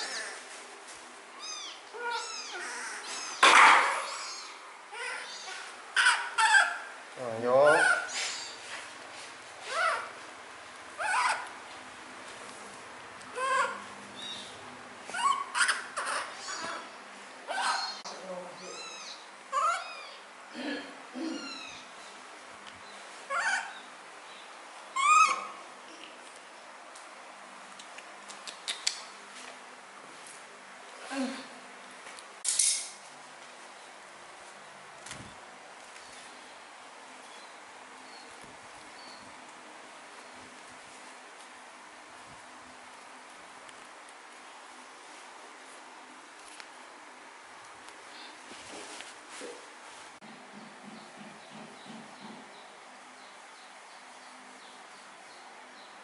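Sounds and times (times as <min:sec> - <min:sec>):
young animal crying: 0:00.0 - 0:00.4, 0:01.4 - 0:06.9, 0:09.7 - 0:10.2, 0:11.0 - 0:11.5, 0:13.3 - 0:13.8, 0:15.1 - 0:20.3, 0:21.2 - 0:21.9, 0:23.3 - 0:23.9, 0:24.9 - 0:25.6.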